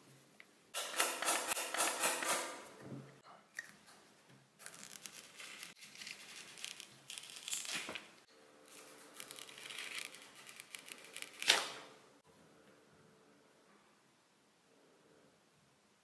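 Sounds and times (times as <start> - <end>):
plastic film peeling: 4.6 - 8.2, 9.0 - 11.9.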